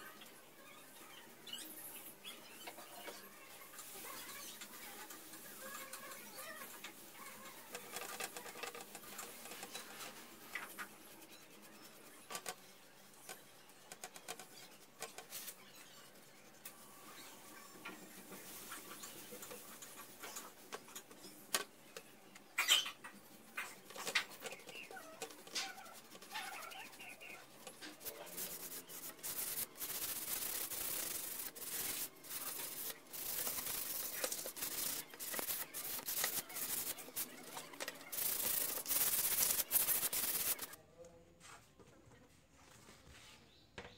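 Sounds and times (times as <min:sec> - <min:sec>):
sandpaper rubbing on wood: 0:24.3 - 0:40.8.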